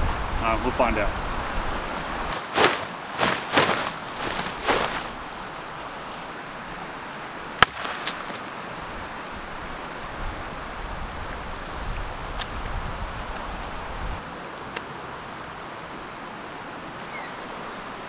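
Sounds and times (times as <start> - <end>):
insect hum: 0.0 - 18.0
outdoor hiss: 0.0 - 18.0
tarp rustling: 1.2 - 6.6
dry stick snapping: 7.6 - 8.5.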